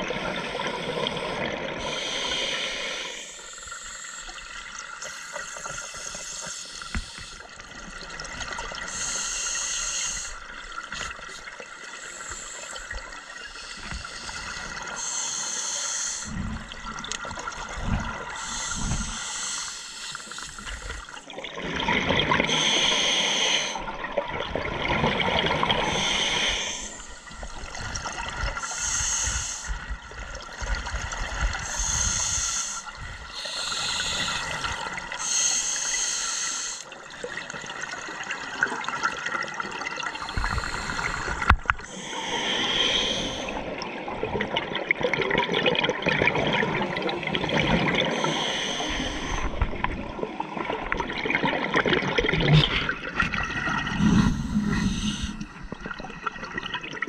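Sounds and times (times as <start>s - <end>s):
regulator breathing hiss: 0.4s - 4.4s, 5.0s - 7.5s, 8.8s - 11.2s, 12.0s - 16.4s, 18.4s - 21.2s, 22.5s - 23.8s, 25.8s - 27.6s, 28.6s - 29.9s, 31.6s - 36.9s, 40.2s - 43.6s, 48.1s - 49.6s, 54.0s - 55.5s
exhaled air bubbling: 16.2s - 36.2s, 36.8s - 57.0s.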